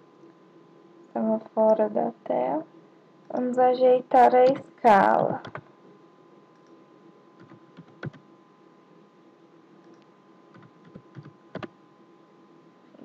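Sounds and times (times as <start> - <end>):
faint steady hum: 0.0 - 13.0
computer keyboard typing: 5.2 - 5.6, 7.4 - 8.2, 10.5 - 11.7.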